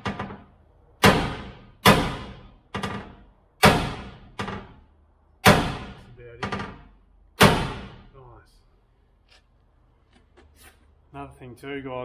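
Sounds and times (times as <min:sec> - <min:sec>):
hammer striking steel: 0:01.0 - 0:04.8, 0:05.4 - 0:06.8.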